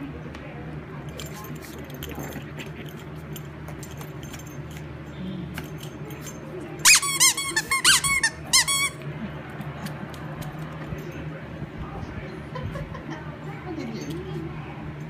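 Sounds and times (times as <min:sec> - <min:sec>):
squeaky dog toy squeaking: 0:06.8 - 0:09.0.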